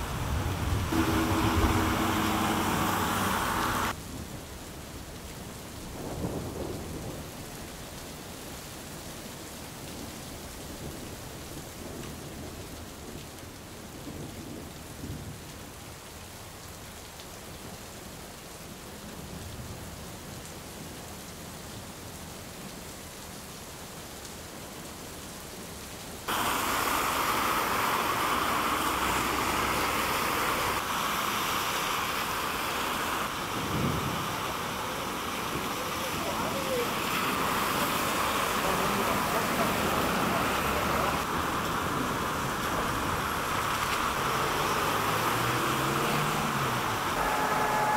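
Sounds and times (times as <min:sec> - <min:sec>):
low rumble of passing car: 0:00.0 - 0:03.9, 0:26.3 - 0:47.9
car splashing through floodwater: 0:00.0 - 0:04.4, 0:26.3 - 0:47.9
heavy rain hissing: 0:00.0 - 0:17.0, 0:25.6 - 0:47.9.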